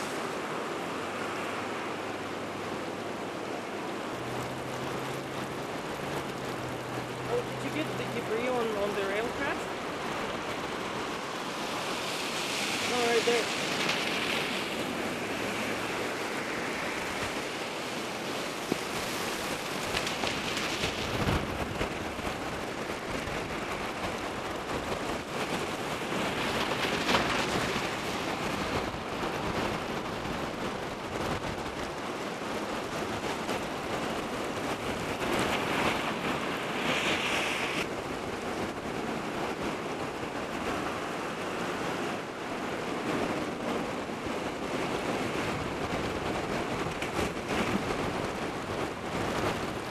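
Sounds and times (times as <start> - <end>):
floodwater rushing: 0.0 - 49.9.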